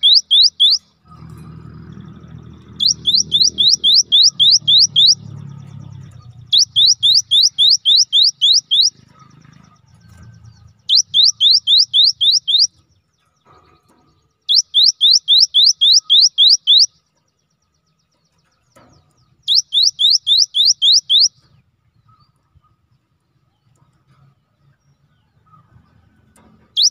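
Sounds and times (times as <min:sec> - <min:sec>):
bird singing rising whistles: 0:00.0 - 0:01.0, 0:01.9 - 0:05.5, 0:06.1 - 0:09.0, 0:10.5 - 0:12.8, 0:19.5 - 0:21.5.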